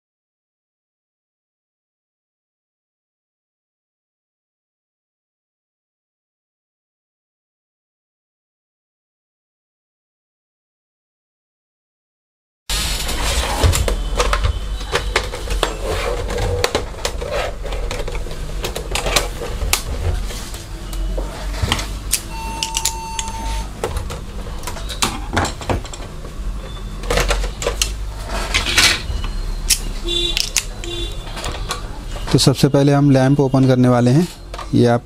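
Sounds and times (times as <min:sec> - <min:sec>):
single steady beep: 0:22.3 - 0:23.7.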